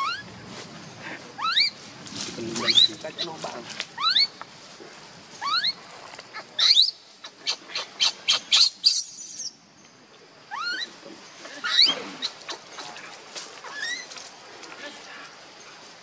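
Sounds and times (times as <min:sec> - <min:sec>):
infant monkey crying: 0:00.0 - 0:00.3, 0:01.1 - 0:01.8, 0:02.6 - 0:03.4, 0:04.0 - 0:04.4, 0:05.4 - 0:09.5, 0:10.5 - 0:13.0, 0:13.6 - 0:14.1.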